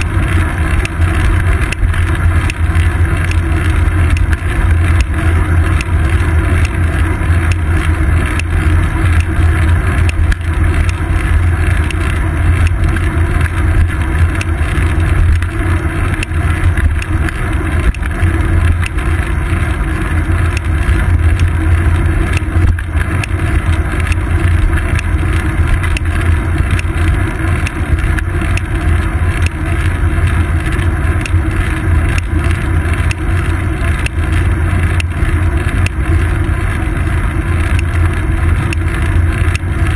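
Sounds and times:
wind and road rumble: 0.0 - 39.9.

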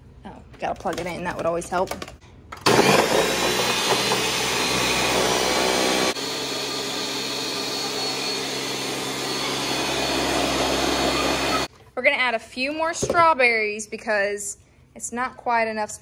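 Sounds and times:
blender crushing frozen fruit: 2.6 - 11.7.

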